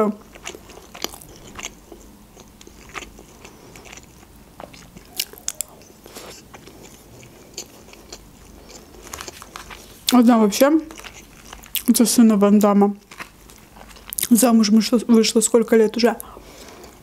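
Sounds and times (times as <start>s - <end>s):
chewing rice: 0.2s - 10.2s, 10.8s - 12.0s, 12.6s - 14.3s.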